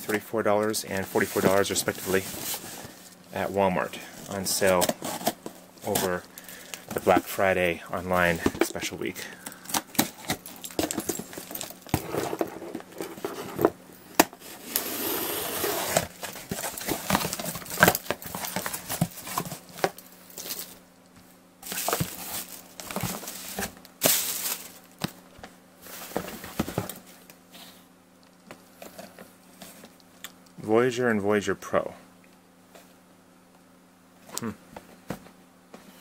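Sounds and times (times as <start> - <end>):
plastic packing bags crinkling: 0.9 - 13.4, 15.8 - 20.8, 21.6 - 25.2.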